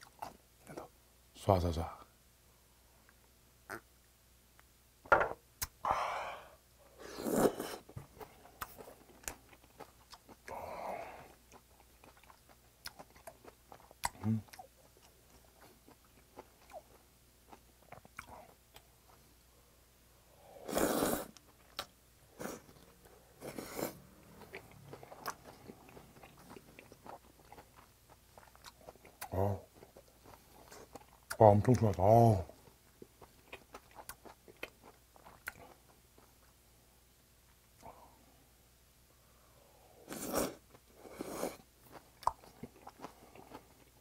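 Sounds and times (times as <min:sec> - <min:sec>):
chewing and slurping: 0:20.8 - 0:31.4.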